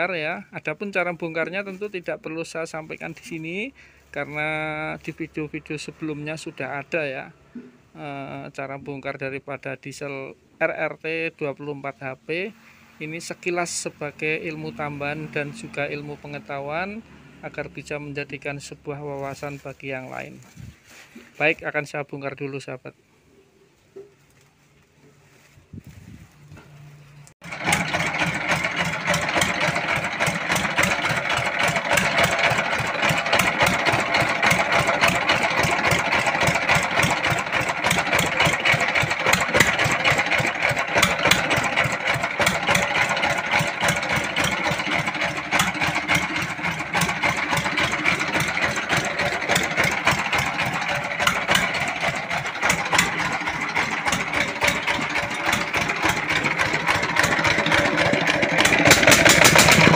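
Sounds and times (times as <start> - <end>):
diesel engine running: 0.0 - 6.6, 12.5 - 21.1, 25.2 - 59.9
mechanical clatter: 27.4 - 59.9.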